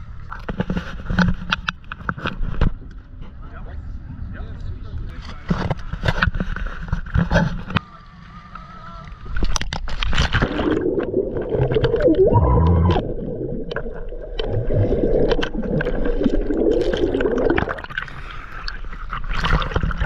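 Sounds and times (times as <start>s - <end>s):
underwater bubbling and gurgling: 6.2s - 20.0s
water sloshing: 9.1s - 20.0s
muffled tone: 11.6s - 13.7s.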